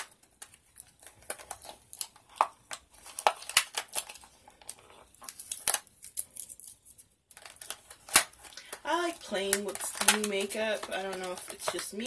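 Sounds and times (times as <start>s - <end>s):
plastic packages clicking and crinkling: 0.0s - 12.0s.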